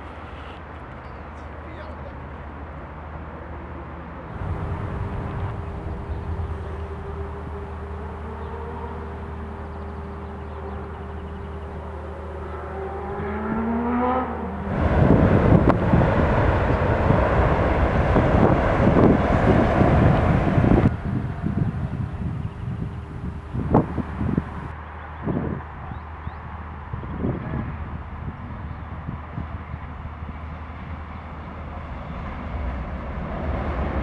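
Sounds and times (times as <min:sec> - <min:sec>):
electric train humming: 0:04.1 - 0:25.1
traction motors whining: 0:04.3 - 0:13.7, 0:14.5 - 0:24.8
train wheels rumbling on a bridge: 0:04.4 - 0:11.9, 0:14.6 - 0:24.7.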